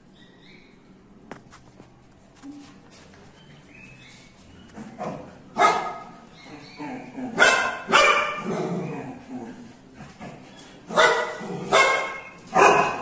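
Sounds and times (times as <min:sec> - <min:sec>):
dog barking: 0:05.0 - 0:06.2, 0:07.4 - 0:08.7, 0:10.9 - 0:13.0.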